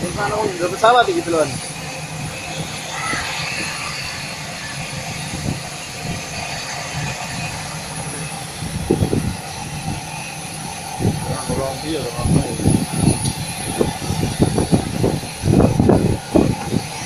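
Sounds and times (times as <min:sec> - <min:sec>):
distant jet engines running: 0:00.0 - 0:17.0
low rumbling gusts: 0:00.0 - 0:17.0.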